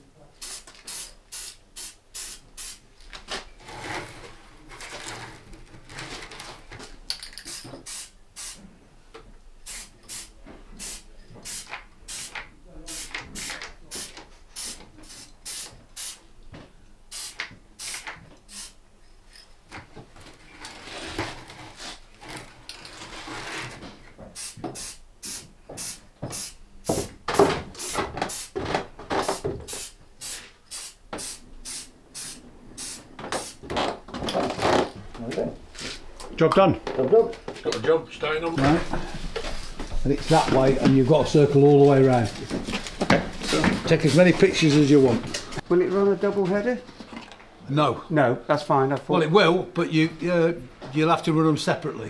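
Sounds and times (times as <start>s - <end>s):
spray paint can hissing: 0.4s - 2.8s, 7.4s - 8.6s, 9.6s - 16.2s, 17.1s - 18.8s, 24.4s - 27.1s, 27.8s - 28.6s, 29.3s - 33.6s.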